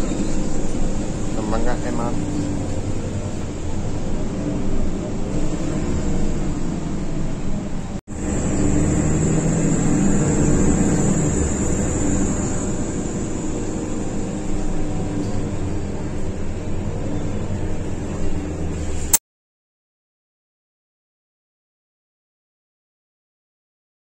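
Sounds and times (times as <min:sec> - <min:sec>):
bus engine drone: 0:00.0 - 0:19.2
road noise: 0:00.0 - 0:19.2.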